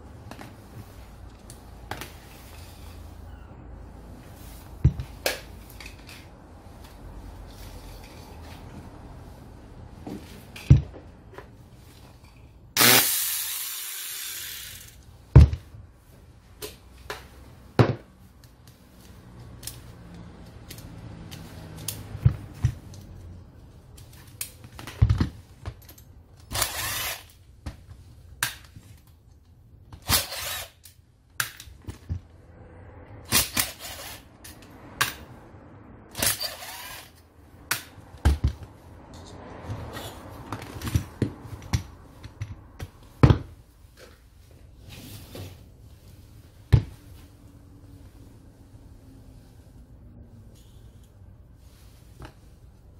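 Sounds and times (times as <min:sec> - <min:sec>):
tool handling clicks and knocks: 0:04.8 - 0:07.0, 0:10.0 - 0:12.6
angle grinder running: 0:12.8 - 0:15.0
cordless driver bursts: 0:12.8 - 0:15.0, 0:26.5 - 0:27.3, 0:30.0 - 0:30.8.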